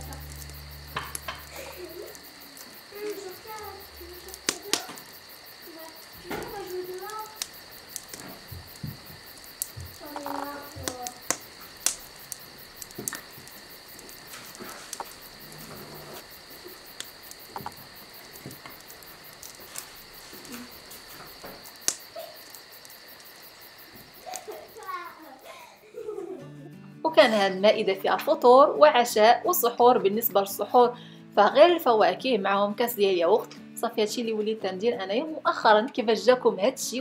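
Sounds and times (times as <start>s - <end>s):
child's voice: 1.5s - 5.0s, 5.7s - 7.4s, 10.0s - 11.2s, 24.2s - 26.4s.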